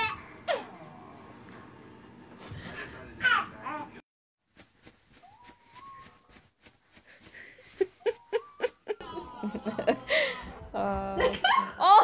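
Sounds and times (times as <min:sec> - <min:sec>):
person laughing quietly: 0:07.3 - 0:10.4.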